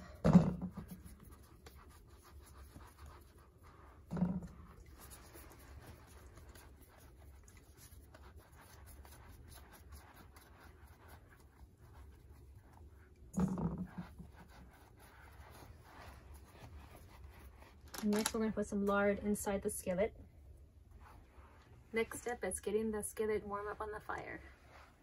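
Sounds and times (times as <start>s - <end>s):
hands kneading dough: 0.0s - 19.0s.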